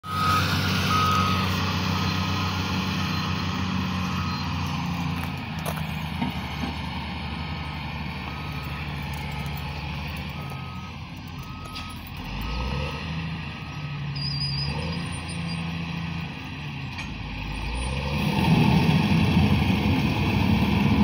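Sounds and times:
reversing alarm beeping: 0.0 - 5.3, 7.4 - 15.8
diesel engine running: 0.0 - 21.0.

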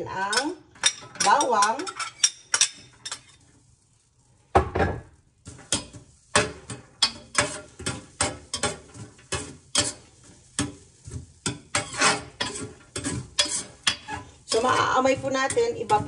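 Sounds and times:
metal spoon scraping a skillet: 0.1 - 4.0, 5.4 - 16.0
spoon clattering: 11.4 - 16.0.

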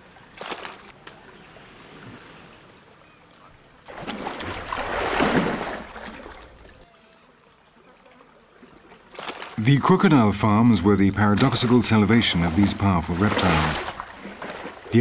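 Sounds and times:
high insect drone: 0.0 - 15.0
crocodile splashing in water: 3.8 - 6.8, 11.1 - 15.0.

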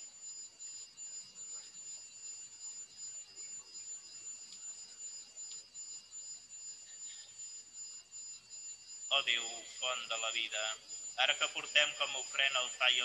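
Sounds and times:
faint clicks: 4.4 - 4.7, 5.4 - 5.7.

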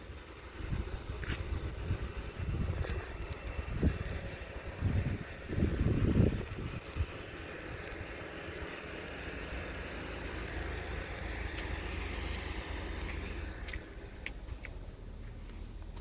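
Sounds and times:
wind rumbling on microphone: 0.0 - 8.9
outdoor background noise: 0.0 - 16.0.

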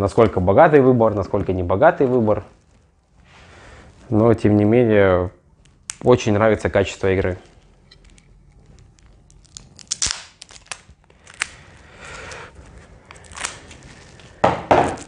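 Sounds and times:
cards and packaging crinkling: 7.4 - 15.0.

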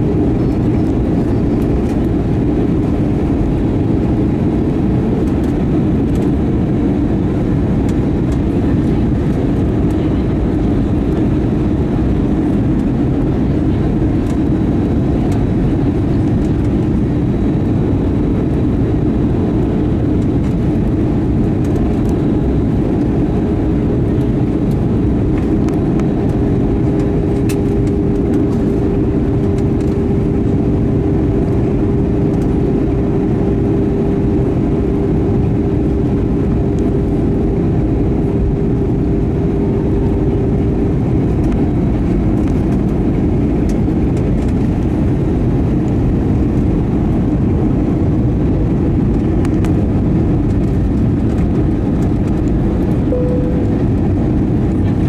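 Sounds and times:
airplane cabin rumble: 0.0 - 55.0
thin steady hum: 53.0 - 55.0.

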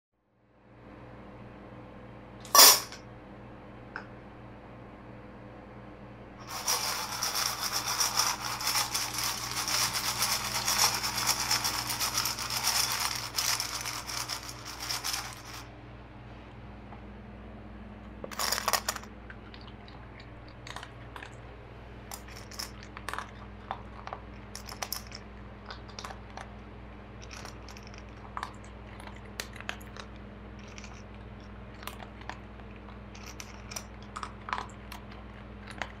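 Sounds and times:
dog crunching food: 6.5 - 15.6, 18.3 - 21.4, 22.0 - 26.6, 27.2 - 36.0.

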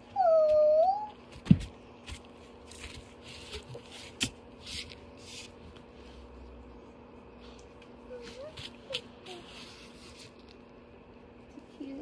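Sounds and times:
scuffing and rubbing noises: 1.2 - 6.4, 7.3 - 10.5.

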